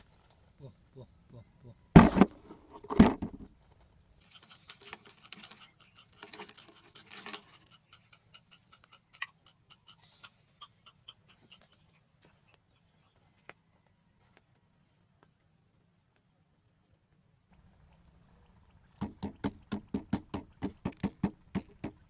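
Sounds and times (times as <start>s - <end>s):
sharp knocks: 2.0s - 3.5s
seeds pattering on cardboard: 2.0s - 7.7s.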